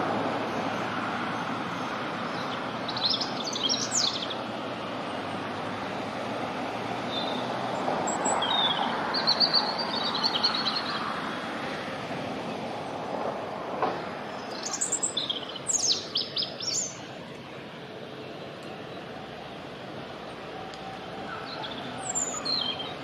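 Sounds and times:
heavy road traffic: 0.0s - 23.0s
robin singing: 0.4s - 5.4s, 7.0s - 11.1s, 14.3s - 23.0s.

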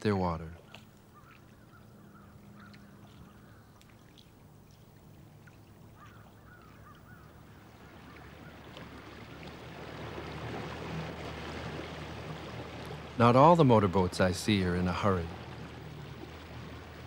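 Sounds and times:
motorboat engine hum: 0.0s - 17.0s
faint bird calls: 0.5s - 9.6s.

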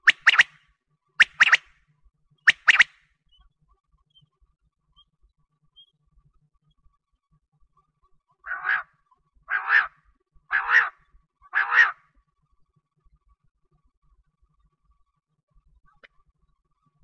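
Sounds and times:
quail calling: 1.2s - 1.7s, 2.5s - 2.9s, 8.5s - 8.9s, 9.5s - 12.0s.

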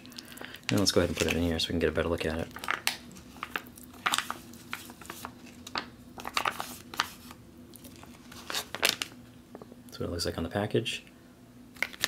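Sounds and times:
pouch crinkling: 2.6s - 9.2s.

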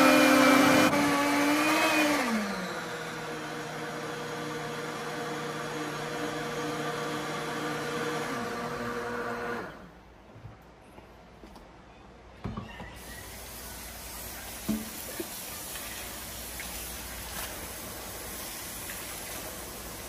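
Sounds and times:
water running into a sink: 14.0s - 20.0s.

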